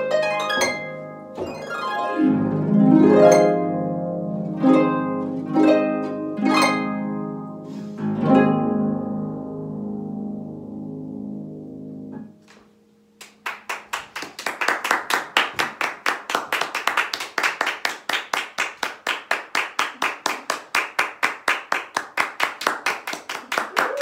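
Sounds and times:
applause: 13.2 - 24.0.

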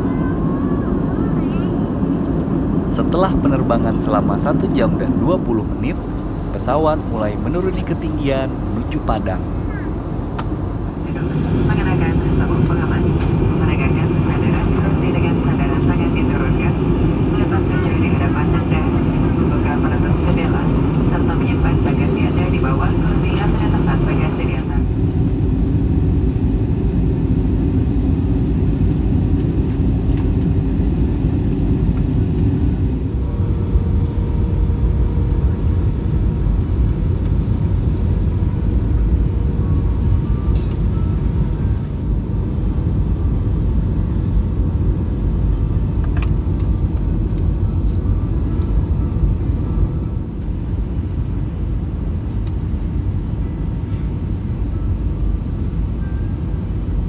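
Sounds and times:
aircraft cabin engine rumble: 0.0 - 57.0
hum changing pitch: 30.9 - 44.2.

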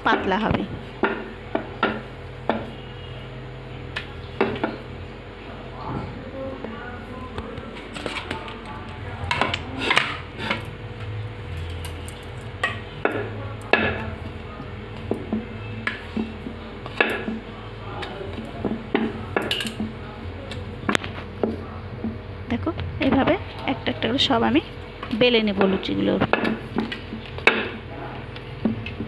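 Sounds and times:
rolling pin rolling dough: 13.0 - 20.2.

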